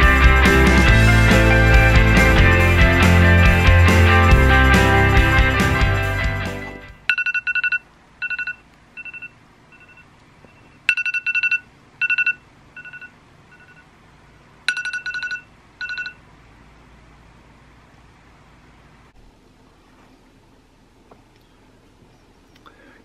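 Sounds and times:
phone alarm beeping: 0:07.1 - 0:13.8, 0:14.7 - 0:16.2.

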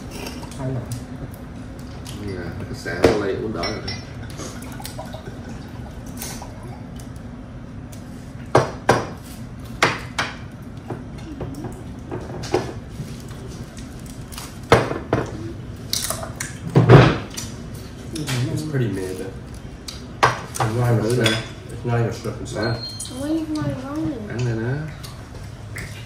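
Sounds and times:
low background hum: 0:00.0 - 0:26.0
dishes and cutlery clinking: 0:02.0 - 0:04.3, 0:20.3 - 0:21.8.

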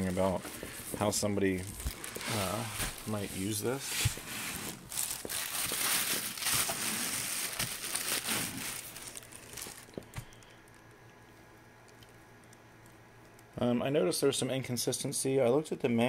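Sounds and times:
plastic bag crinkling: 0:00.0 - 0:10.9.

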